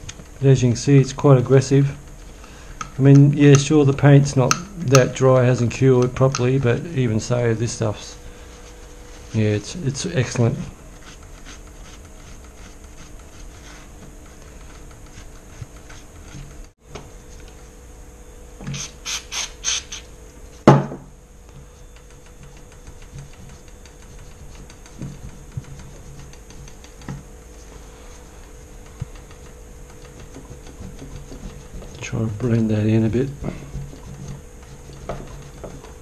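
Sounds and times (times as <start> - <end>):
rag rubbing over paint: 6.6 - 16.7, 22.4 - 36.0.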